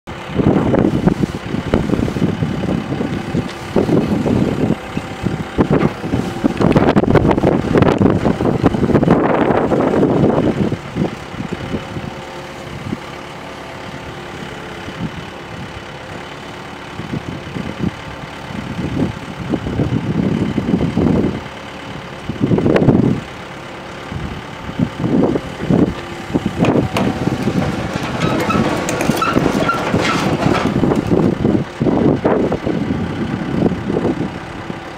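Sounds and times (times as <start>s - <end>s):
excavator diesel engine surging: 0.1s - 34.9s
machine clanking and rattling: 1.8s - 8.4s, 25.4s - 31.6s.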